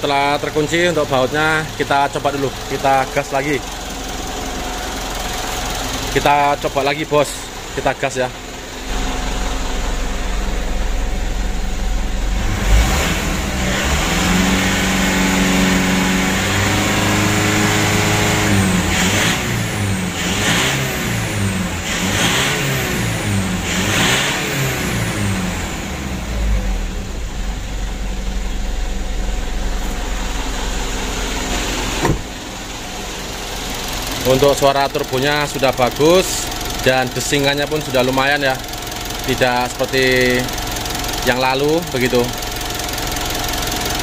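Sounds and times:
diesel engine idling and revving: 0:00.0 - 0:44.0.

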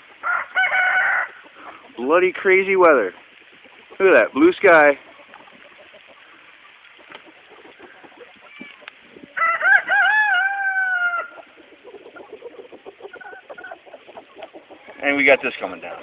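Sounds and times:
hail ticking on ground: 0:00.0 - 0:16.0
rooster crowing: 0:00.2 - 0:01.4, 0:09.4 - 0:11.5.

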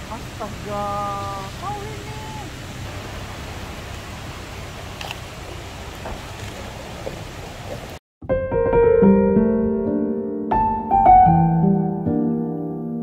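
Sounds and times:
outdoor ambience hiss: 0:00.0 - 0:08.0.

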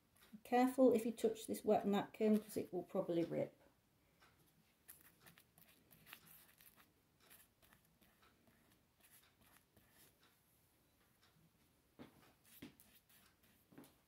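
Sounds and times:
paintbrush strokes: 0:02.2 - 0:03.0, 0:04.4 - 0:10.4, 0:12.1 - 0:14.0.

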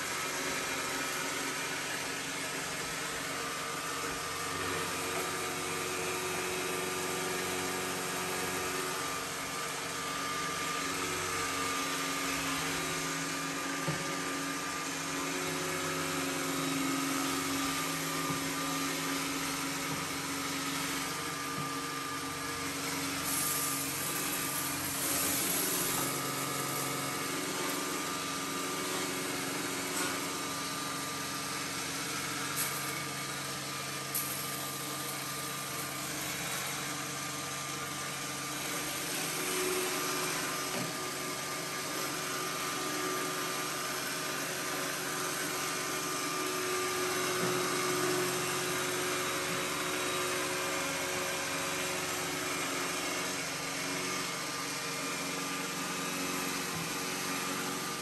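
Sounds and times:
robot vacuum whirring: 0:18.2 - 0:30.8.

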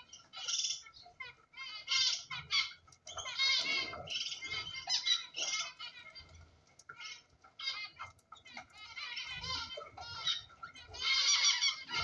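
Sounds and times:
cockatiels chirping: 0:00.0 - 0:12.0.

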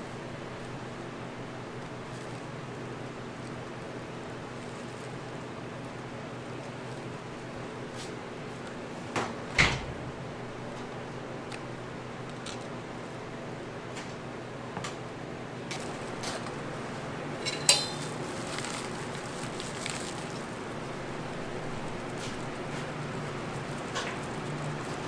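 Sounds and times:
metal spatula clinking on container: 0:17.4 - 0:18.1.

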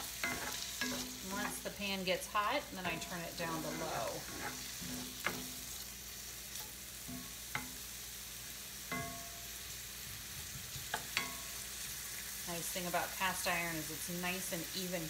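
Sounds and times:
onion sizzling in oil: 0:00.0 - 0:15.0
spatula knocking against pan: 0:08.9 - 0:09.3.

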